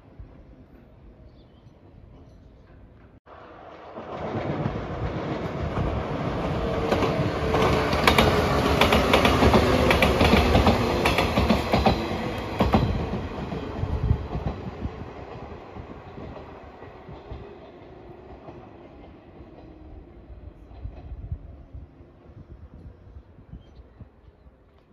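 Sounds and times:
train rumble: 1.9 - 24.2
train wheels clattering over rail joints: 4.0 - 14.7.

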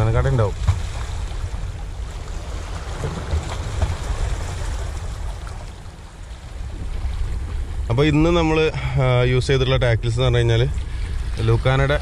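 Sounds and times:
wind rumbling on microphone: 0.0 - 12.0
small waves lapping against rocks: 0.2 - 7.9.

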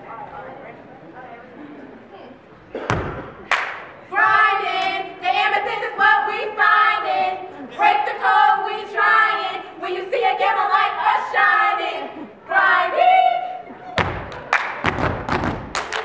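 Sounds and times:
women singing together: 4.0 - 13.8.

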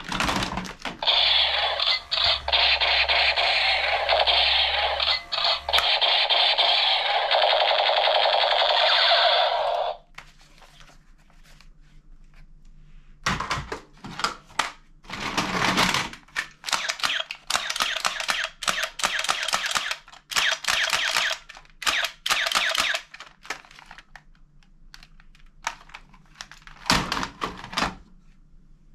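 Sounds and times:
toy gun rattling sound effects: 0.3 - 10.0, 16.6 - 24.0.

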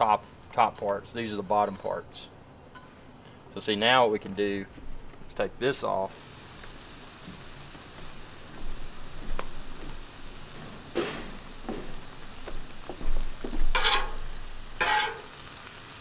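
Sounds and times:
food sizzling on griddle: 5.0 - 16.0
spatula scraping on steel: 13.6 - 15.4.

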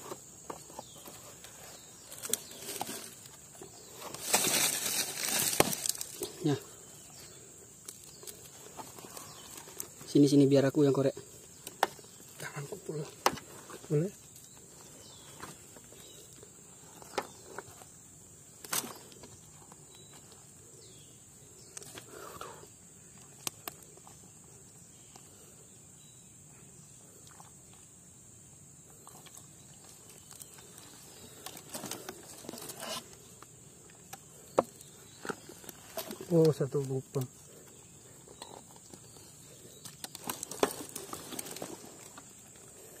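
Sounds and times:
insects buzzing: 0.0 - 43.0
hand scraping dry soil: 30.6 - 33.4.

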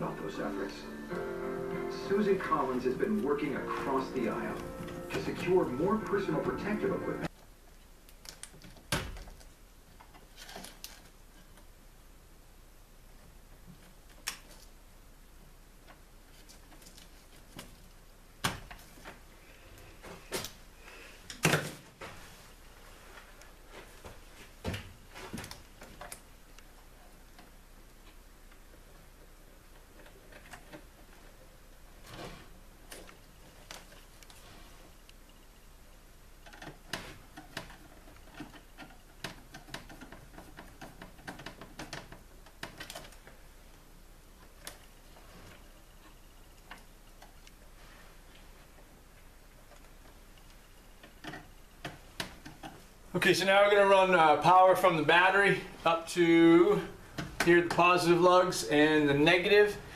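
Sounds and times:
hand tools clicking and knocking: 36.4 - 43.3.

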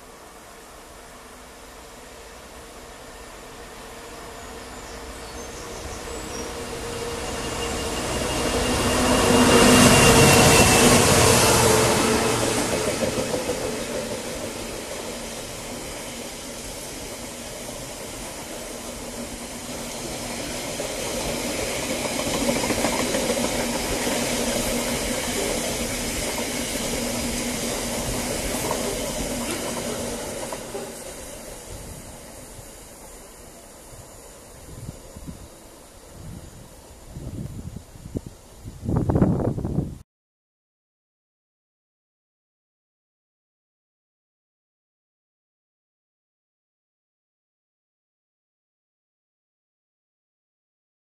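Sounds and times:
diesel locomotive passing: 0.0 - 39.8
train wheels rolling on rails: 1.5 - 39.1.

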